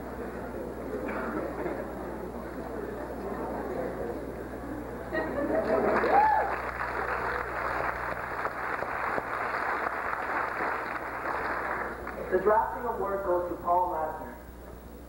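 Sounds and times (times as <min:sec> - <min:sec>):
audience applauding: 0:05.4 - 0:12.3.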